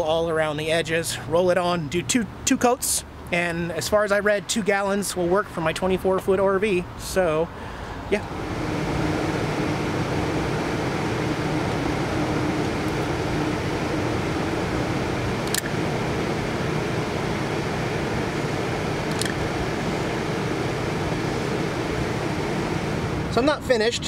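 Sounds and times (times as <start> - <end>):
caulk gun trigger clicks: 15.4 - 15.7, 19.1 - 19.4.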